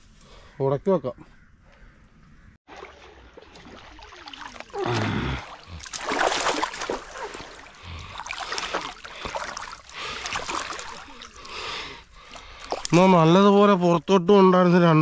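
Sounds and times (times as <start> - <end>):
water splashing and sloshing: 2.6 - 14.0.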